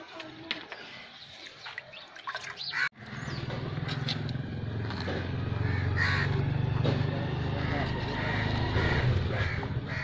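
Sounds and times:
birds chirping: 0.6 - 6.5.

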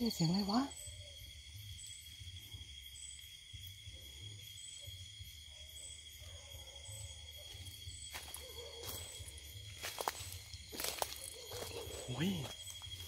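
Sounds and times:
insects droning: 0.0 - 13.0
distant dog howl: 5.6 - 7.7.

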